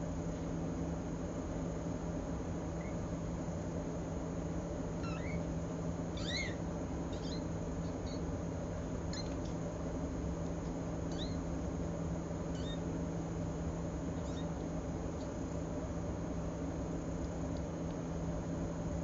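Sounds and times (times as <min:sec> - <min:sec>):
steady low hum: 0:00.0 - 0:19.0
kittens mewing: 0:04.9 - 0:08.3, 0:11.0 - 0:11.5, 0:12.5 - 0:12.9, 0:14.2 - 0:14.6.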